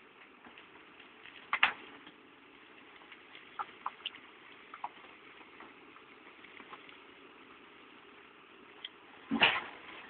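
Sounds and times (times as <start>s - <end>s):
stone crashing into steel trailer: 9.3s - 10.0s.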